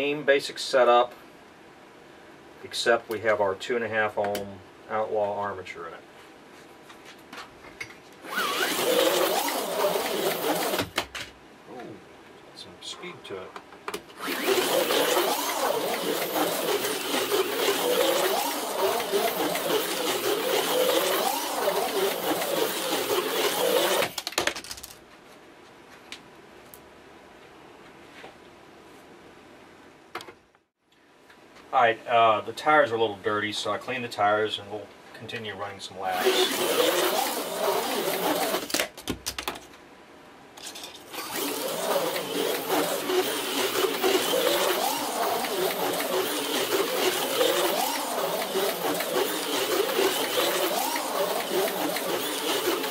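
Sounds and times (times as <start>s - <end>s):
electric motor whining: 8.2s - 11.0s, 14.2s - 24.2s, 36.1s - 38.7s, 41.1s - 52.9s
slot car buzzing on track: 8.3s - 10.8s, 14.2s - 24.1s, 36.1s - 38.7s, 41.2s - 52.9s.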